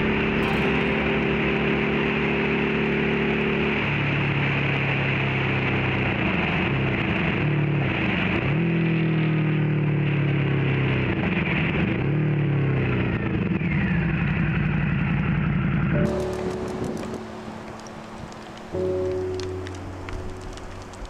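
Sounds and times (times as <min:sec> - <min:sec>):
motorcycle engine at speed: 0:01.0 - 0:17.2.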